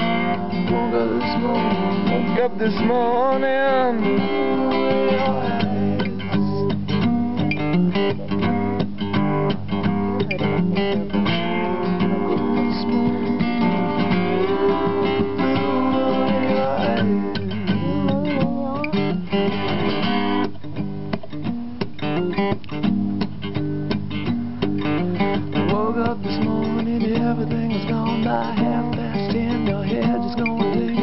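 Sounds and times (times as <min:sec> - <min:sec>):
acoustic guitar strumming: 0:00.0 - 0:31.0.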